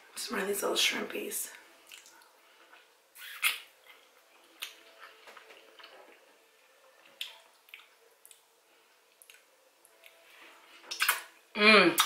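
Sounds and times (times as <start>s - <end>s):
wet chewing sounds: 1.8s - 6.4s, 7.0s - 8.5s, 9.1s - 10.2s.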